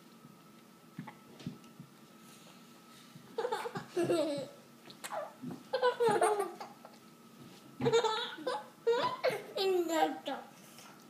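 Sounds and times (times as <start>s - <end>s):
toddlers giggling and laughing: 3.4s - 6.9s.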